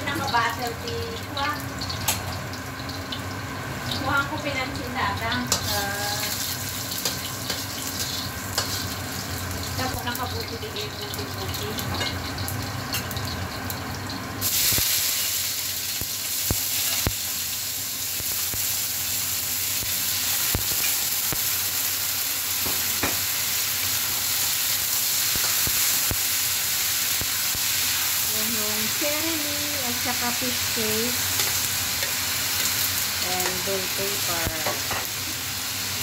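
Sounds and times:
food hissing into hot oil: 0.0 - 36.0
garlic crackling in hot oil: 0.0 - 36.0
stir-fry sizzling: 0.0 - 36.0
spatula scraping and knocking wok: 5.5 - 9.0, 31.1 - 35.3.

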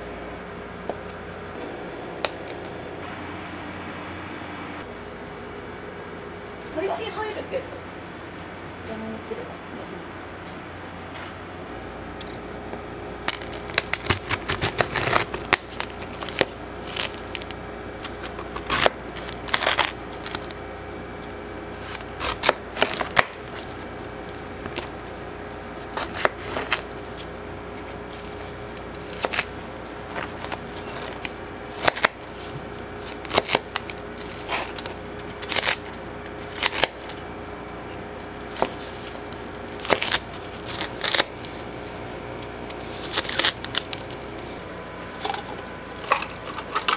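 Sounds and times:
steady low hum: 0.0 - 46.9
hard sugar shell cracking: 2.2 - 2.8, 13.2 - 46.9.

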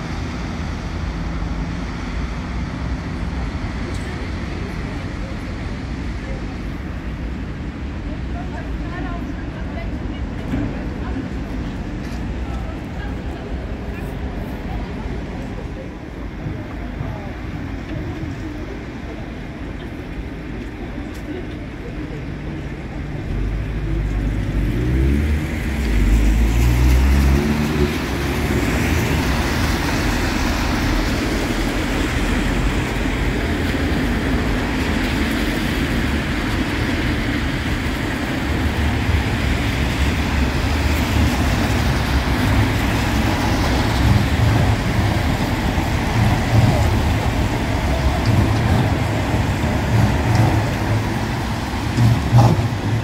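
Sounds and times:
street traffic: 0.0 - 53.0
trams rolling on rails: 0.0 - 53.0.

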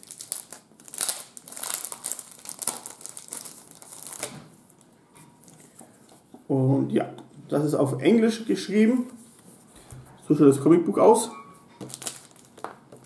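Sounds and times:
plastic wrapping crinkling: 0.0 - 5.7, 11.8 - 13.0.

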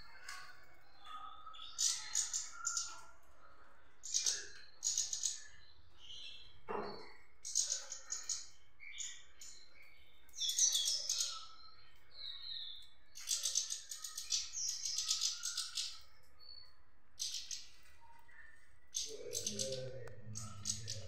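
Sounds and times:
goldfinch singing: 18.9 - 21.0.

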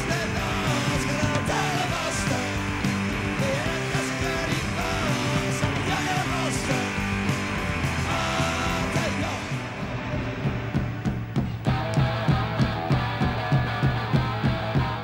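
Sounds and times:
half-shouted lead vocal: 0.0 - 11.2
bass guitar: 0.0 - 15.0
drums: 0.0 - 15.0
electric guitars: 0.0 - 15.0.

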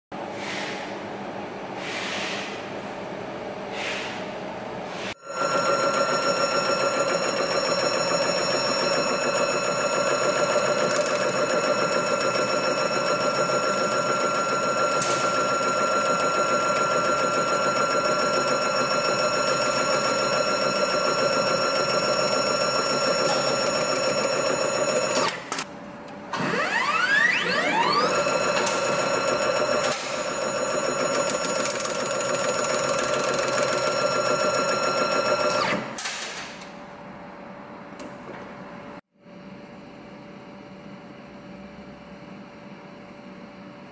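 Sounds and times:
tape winding machine whine: 5.1 - 25.7, 26.3 - 36.0.

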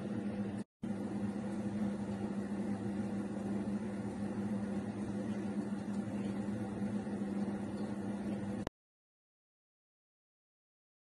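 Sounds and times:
kitchen appliance humming: 0.0 - 8.7.

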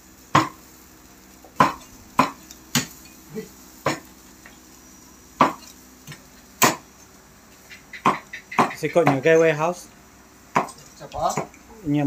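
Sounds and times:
utensil knocking on grill: 0.3 - 0.7, 1.4 - 3.0, 3.8 - 4.6, 5.4 - 6.9, 8.0 - 9.5, 10.5 - 11.6.

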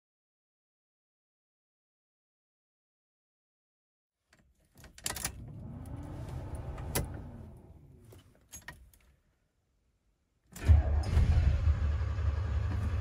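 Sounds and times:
low rumble of handling noise: 4.8 - 9.1.

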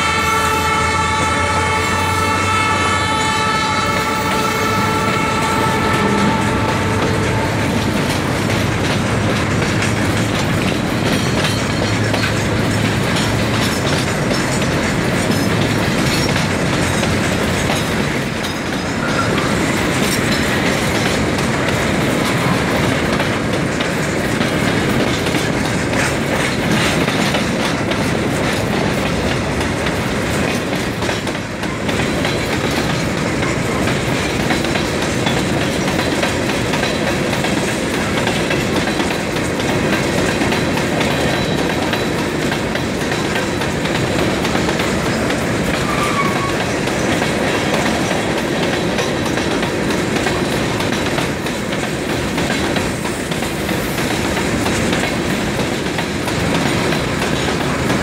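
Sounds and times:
freight train rolling past: 0.0 - 58.0
wheels clicking over rail joints: 2.6 - 58.0.

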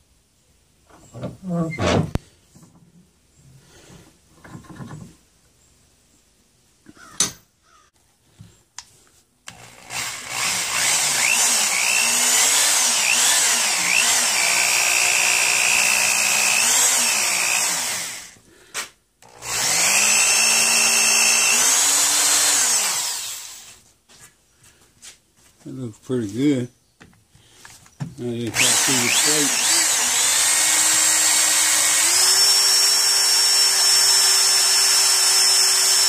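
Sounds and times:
electric drill boring into wood: 9.5 - 18.4, 19.2 - 23.8, 28.4 - 36.0.

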